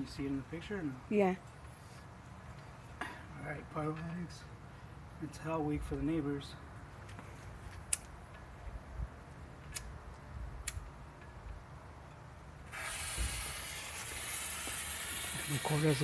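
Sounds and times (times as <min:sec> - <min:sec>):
sharp clicks: 0:09.7 - 0:11.3
firework fuse hissing: 0:12.6 - 0:16.0.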